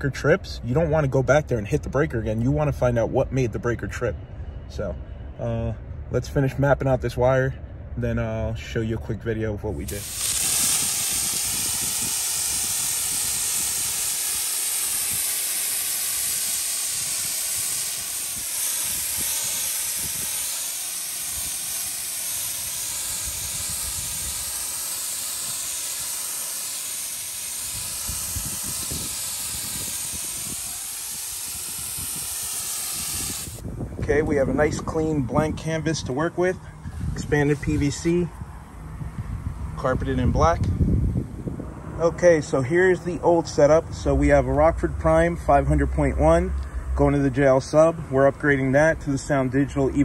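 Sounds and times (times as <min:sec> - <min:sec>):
spray adhesive hissing: 0:09.8 - 0:33.6.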